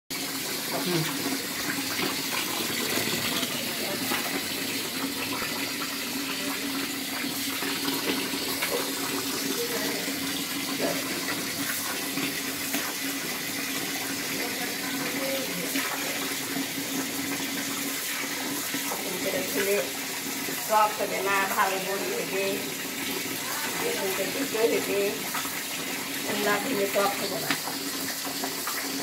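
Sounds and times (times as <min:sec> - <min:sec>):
hands stirring and washing: 0:00.1 - 0:29.0
tap water running into basin: 0:00.1 - 0:29.0.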